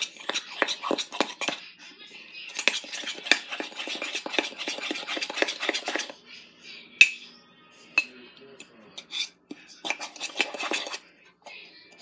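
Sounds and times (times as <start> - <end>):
metal spoon clinking in ceramic mug: 7.0 - 7.2.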